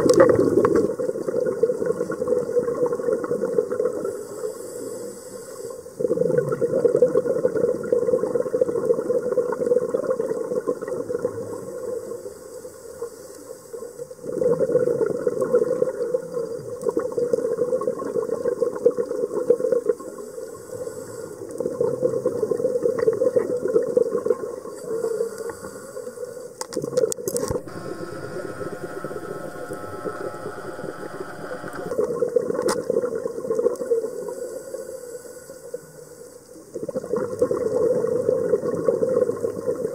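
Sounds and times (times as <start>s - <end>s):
underwater bubbles gurgling: 6.0s - 11.9s, 21.4s - 24.8s, 36.7s - 39.9s
sharp clicks: 27.4s - 32.0s.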